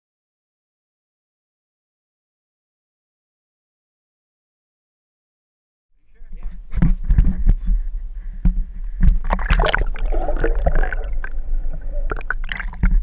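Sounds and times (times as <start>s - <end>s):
heavy low rumble: 6.3s - 13.0s
water sloshing and bubbling: 6.8s - 13.0s.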